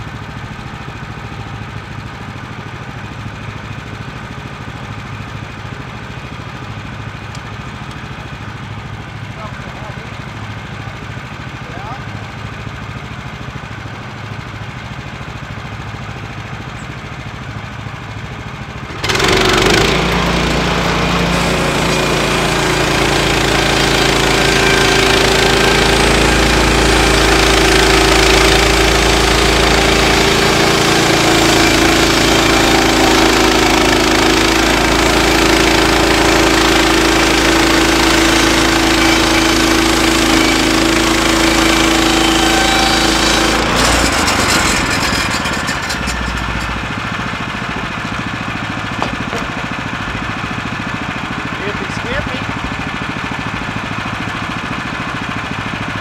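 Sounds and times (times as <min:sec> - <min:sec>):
sawmill engine idling and revving: 0:00.0 - 0:56.0
band saw cutting log: 0:18.9 - 0:53.2.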